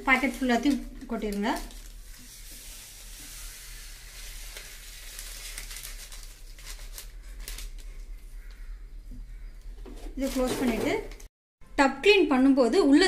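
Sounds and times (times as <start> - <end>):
paper packet crinkling: 0.0 - 8.6
powder grains pouring hiss: 1.6 - 6.4.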